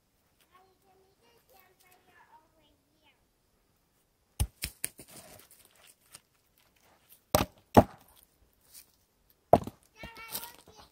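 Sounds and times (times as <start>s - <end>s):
wooden logs knocking together: 7.3s - 8.2s, 9.5s - 10.9s.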